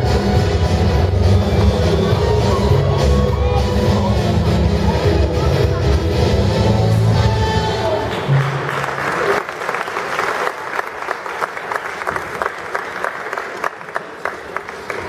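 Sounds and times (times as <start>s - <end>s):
floor exercise music: 0.0s - 8.0s
audience applauding: 8.0s - 15.0s.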